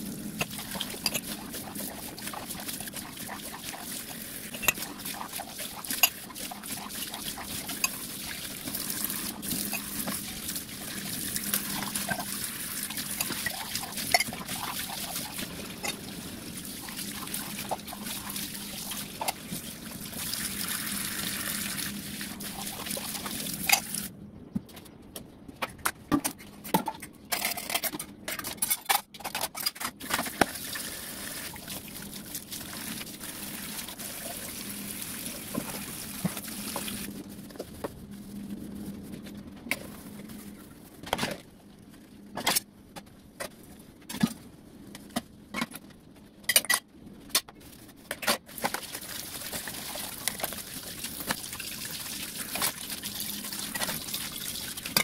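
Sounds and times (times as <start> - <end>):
running and splashing water: 0.0 - 24.1, 30.0 - 37.3, 48.5 - 55.0.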